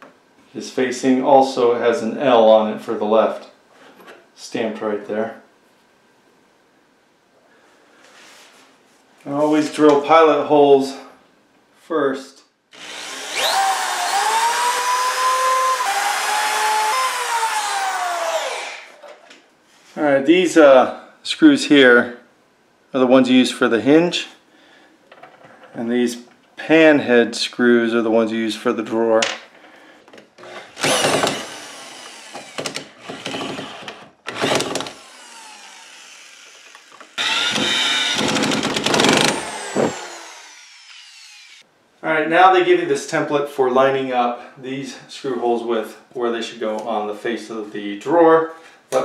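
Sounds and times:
electric drill motor whining: 0:12.8 - 0:19.0, 0:30.8 - 0:41.6.

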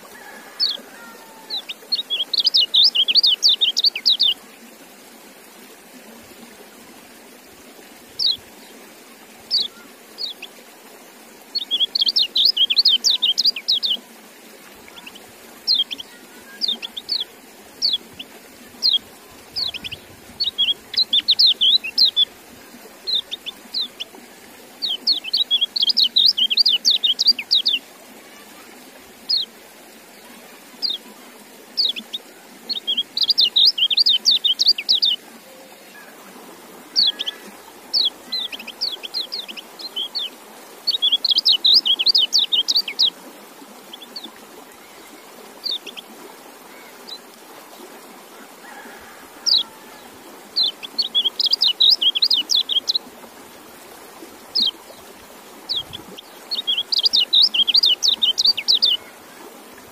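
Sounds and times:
bird twittering: 0:55.7 - 0:59.1.

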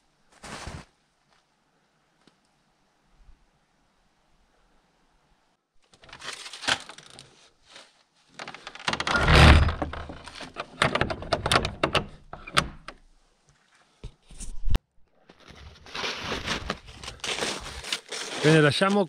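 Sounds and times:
metal bolt clicking and scraping: 0:08.4 - 0:13.0
wooden door scraping shut: 0:08.8 - 0:12.9.

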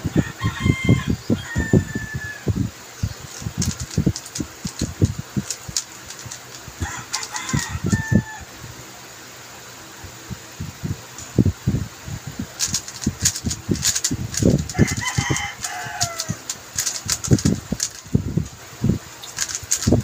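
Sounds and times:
rooster crowing: 0:00.0 - 0:02.6, 0:06.7 - 0:08.8, 0:14.3 - 0:18.0
plastic cube knocks and clacks: 0:03.3 - 0:07.7, 0:12.6 - 0:18.1, 0:19.2 - 0:20.0.

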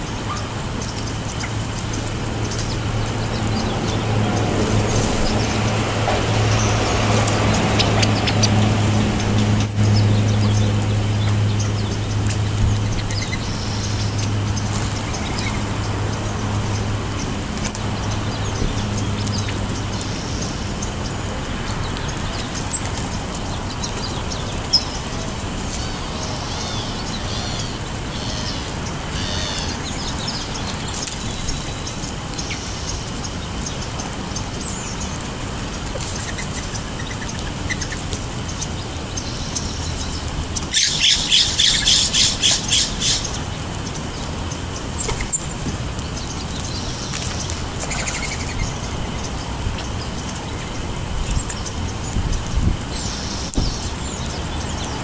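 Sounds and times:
birds chirping faintly: 0:00.0 - 0:55.0
outdoor background noise: 0:00.0 - 0:55.0
loud harsh bird call: 0:26.0 - 0:30.1.

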